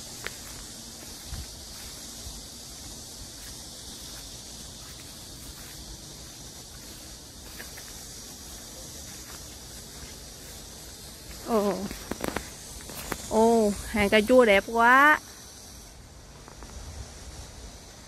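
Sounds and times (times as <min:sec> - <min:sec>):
soft footsteps on grass: 0:00.0 - 0:14.3
cicada chorus hissing: 0:00.0 - 0:18.0.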